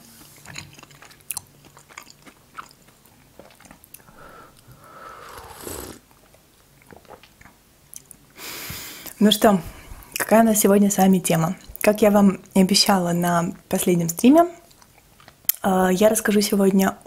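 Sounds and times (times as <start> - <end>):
person chewing: 0.4 - 8.2
sipping hot tea: 4.0 - 6.1.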